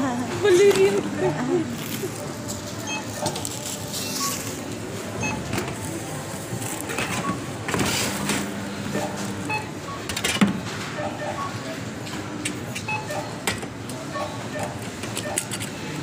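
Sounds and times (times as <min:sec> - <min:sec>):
barcode scanner beeps: 0:02.7 - 0:05.9, 0:06.7 - 0:10.2, 0:11.0 - 0:11.7, 0:12.8 - 0:13.4, 0:14.0 - 0:15.6.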